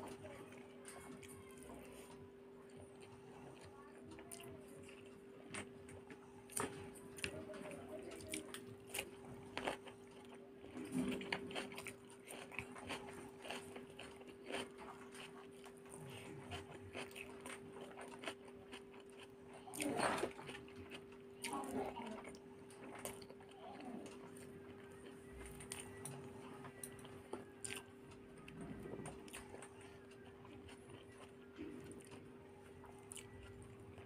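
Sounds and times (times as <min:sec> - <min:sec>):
crunchy bites and chewing: 0:08.8 - 0:23.5.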